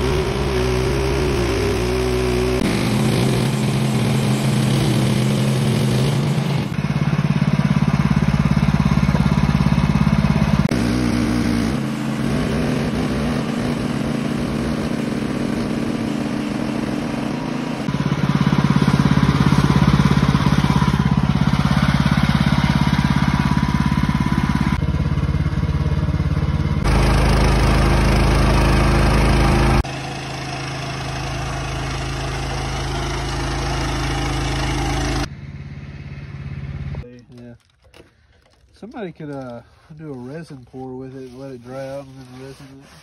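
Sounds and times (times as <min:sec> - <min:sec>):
band blade sawing through log: 0:00.0 - 0:06.8, 0:10.6 - 0:18.0, 0:39.6 - 0:43.0
sawmill gasoline engine drone: 0:00.0 - 0:43.0.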